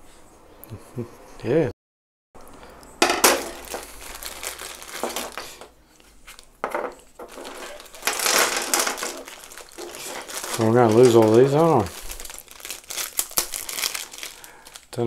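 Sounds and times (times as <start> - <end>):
plastic bag crinkling: 3.2 - 15.0.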